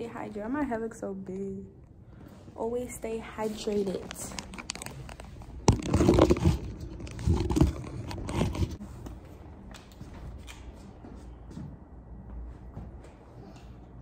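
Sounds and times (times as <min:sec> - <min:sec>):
rustling and crinkling handling: 0:03.6 - 0:08.8.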